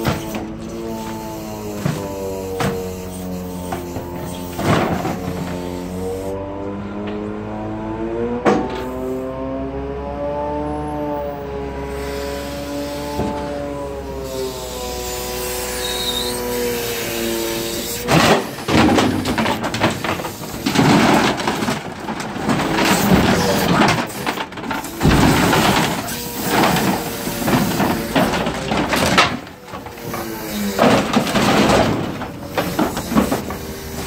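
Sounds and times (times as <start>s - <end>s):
hydraulics whining: 0.0s - 34.0s
panels crashing into steel container: 3.9s - 5.8s, 16.3s - 34.0s.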